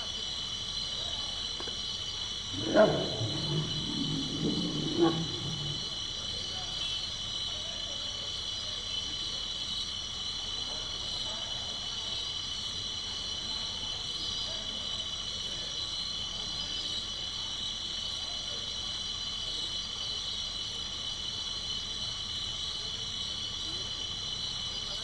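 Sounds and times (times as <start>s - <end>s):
night insects chorus: 0.0s - 25.0s
low rumble: 2.6s - 6.0s.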